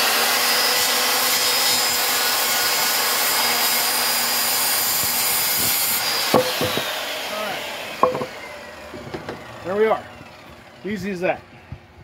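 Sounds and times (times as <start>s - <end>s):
circular saw cutting wood: 0.0s - 11.4s.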